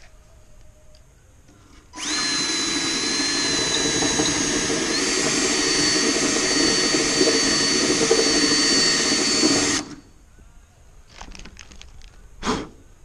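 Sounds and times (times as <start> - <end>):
cordless drill whining: 2.0 - 10.1.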